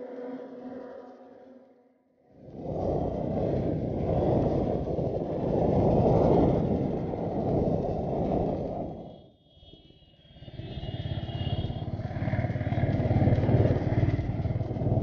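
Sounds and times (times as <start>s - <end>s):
wind rushing over microphone: 2.4s - 9.3s, 10.4s - 15.0s
motorcycle engine running: 10.5s - 15.0s.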